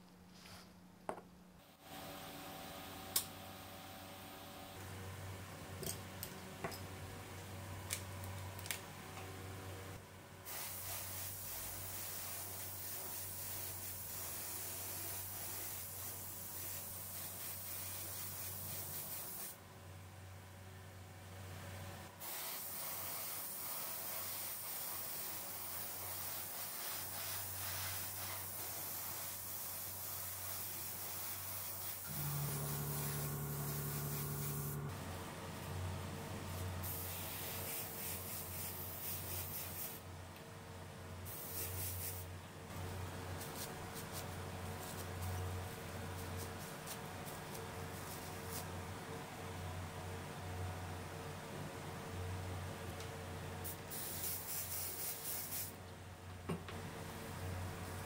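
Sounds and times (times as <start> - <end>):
paint spray gun hissing: 22.2 - 34.9, 36.8 - 39.9
steady low hum: 27.2 - 39.0.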